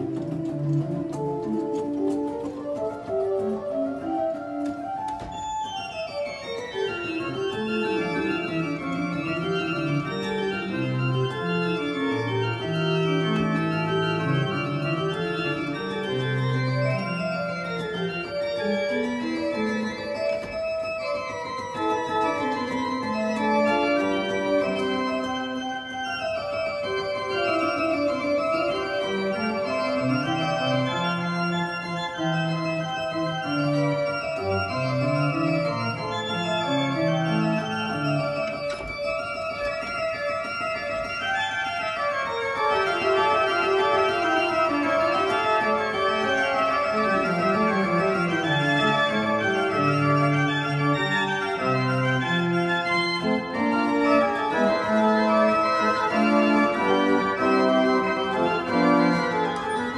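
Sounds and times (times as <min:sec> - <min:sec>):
pipe organ playing: 0:00.0 - 0:59.9.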